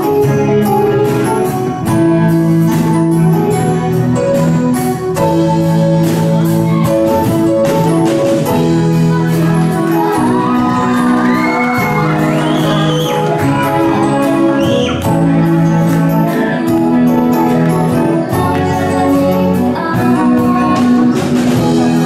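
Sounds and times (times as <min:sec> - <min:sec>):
drums keeping a beat: 0:00.0 - 0:22.0
guitars holding chords: 0:00.0 - 0:22.0.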